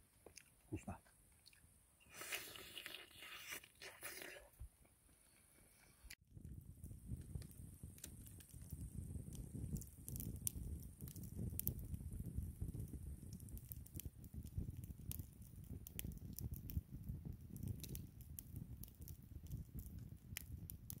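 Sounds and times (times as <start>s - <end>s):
wood crackling and popping: 2.3s - 21.0s
flames rumbling: 6.2s - 21.0s.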